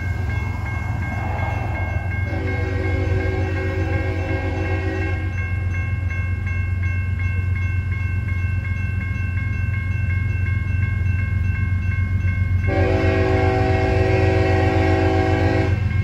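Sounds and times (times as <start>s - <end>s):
low rumble: 0.0s - 4.3s
railroad crossing bell dinging: 0.0s - 16.0s
locomotive horn blast: 2.2s - 5.4s, 12.7s - 15.9s.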